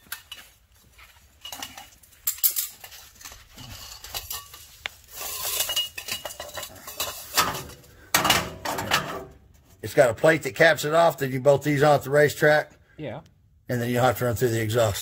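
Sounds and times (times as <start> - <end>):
metal clinks and scrapes: 0.0 - 9.8.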